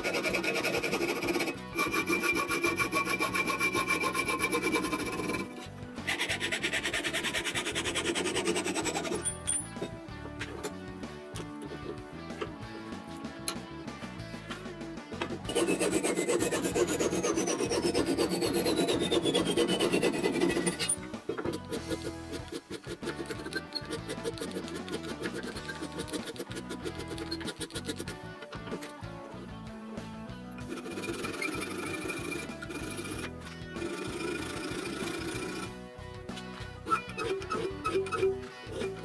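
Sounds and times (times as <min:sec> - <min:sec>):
hacksaw sawing metal bar: 0:00.0 - 0:10.8, 0:15.2 - 0:28.2, 0:30.6 - 0:35.8, 0:36.8 - 0:39.0.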